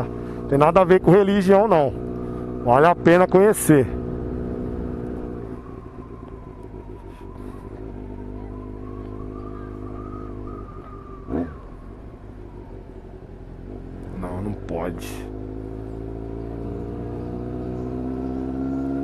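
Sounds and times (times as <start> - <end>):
motorcycle engine cruising: 0.0 - 19.0
wind and road noise: 0.0 - 19.0
rising and falling chirp: 1.2 - 13.3.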